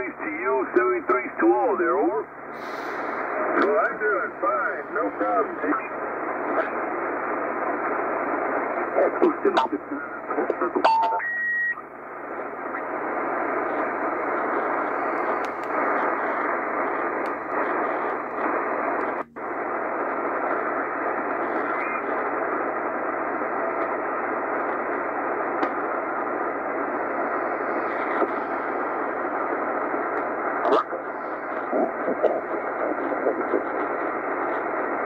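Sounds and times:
radio static hiss: 0.0 - 35.0
radio whistle: 10.6 - 11.9.

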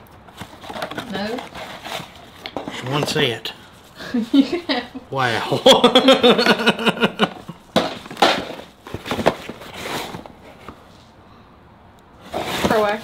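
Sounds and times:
plastic bottles knocking and rustling: 0.3 - 3.4, 7.3 - 10.8.

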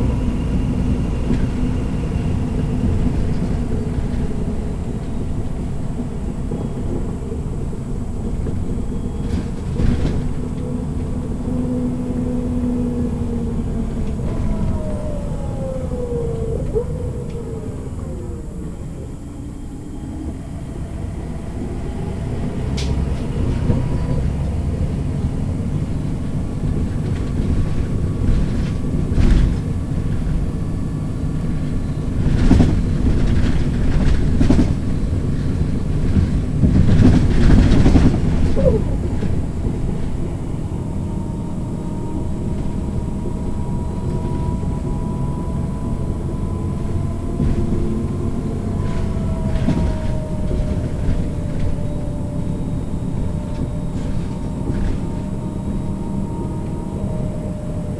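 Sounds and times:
bus diesel engine rumbling: 0.0 - 57.9
gearbox whine: 0.0 - 57.9
clatter and rattling: 31.6 - 40.2.

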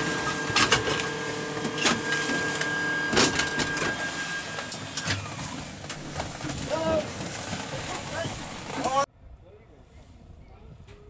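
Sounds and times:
electrical whine: 0.0 - 6.8.

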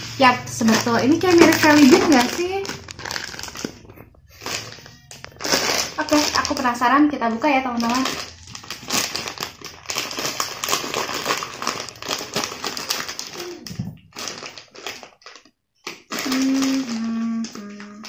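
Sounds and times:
plastic bag crinkling: 0.0 - 18.0.

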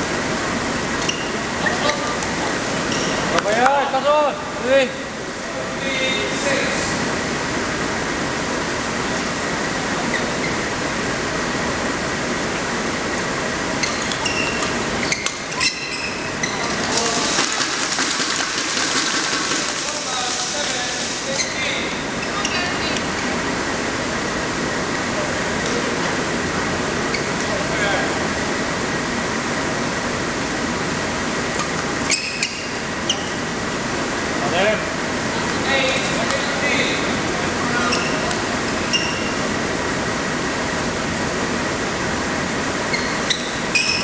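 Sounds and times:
badminton hall background noise: 0.0 - 44.0
court shoes squeaking: 0.9 - 3.4, 10.0 - 10.7, 13.7 - 17.8, 21.2 - 23.2, 27.0 - 27.6, 31.6 - 33.5, 37.6 - 39.6, 42.8 - 44.0.

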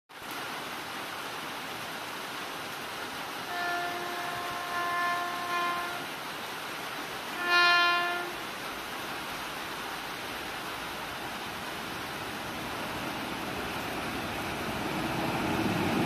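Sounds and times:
rushing noise of train line: 3.2 - 16.0
locomotive horn blast: 3.5 - 6.1, 7.3 - 8.5.

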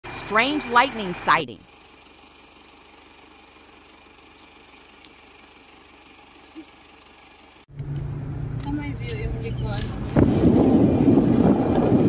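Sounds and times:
insects chirping: 1.6 - 7.7.

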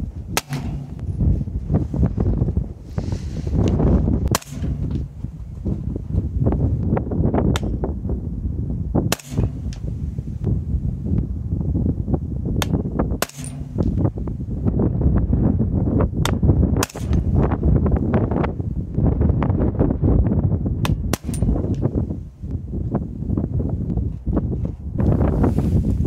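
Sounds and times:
wind buffeting microphone: 0.0 - 26.0
suppressed rifle shots: 0.3 - 1.2, 4.3 - 5.2, 9.1 - 9.9, 12.6 - 14.0, 16.3 - 17.5, 21.1 - 21.8.

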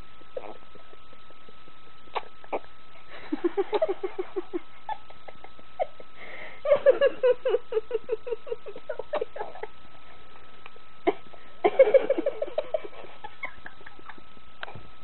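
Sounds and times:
person laughing: 3.1 - 9.8, 11.0 - 14.4.

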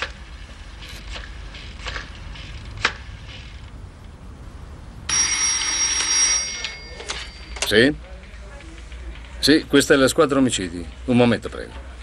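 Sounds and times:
desk telephone ringing: 5.1 - 7.9.

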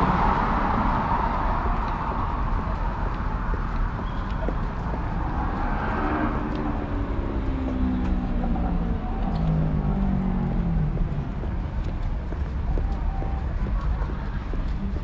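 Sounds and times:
vehicle engine passing: 0.0 - 3.1, 4.6 - 11.7
low traffic rumble: 0.0 - 15.0.

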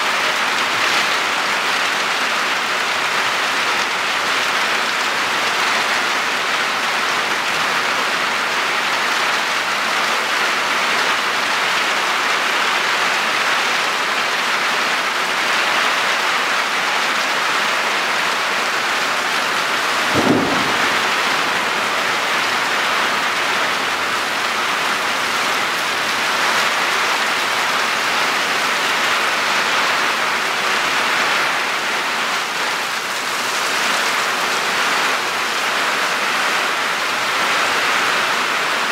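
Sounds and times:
heavy rain hissing: 0.0 - 38.9
water streaming off roof: 0.0 - 38.9
short low thump: 20.1 - 21.5.

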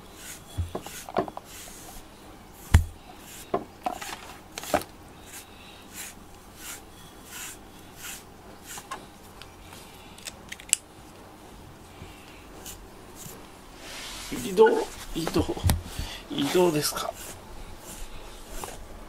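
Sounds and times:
brush rasping through fur: 0.0 - 3.5, 5.2 - 8.9, 12.6 - 18.9
thump: 2.7 - 3.0.

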